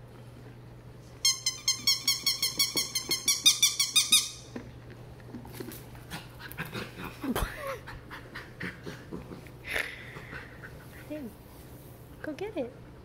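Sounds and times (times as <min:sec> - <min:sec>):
dog toy chirping: 0:01.2 - 0:04.4.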